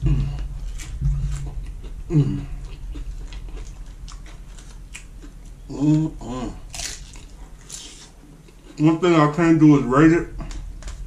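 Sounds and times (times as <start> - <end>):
low vocal sounds: 0.0 - 2.8, 5.7 - 6.7
person crunching chips: 0.2 - 8.8.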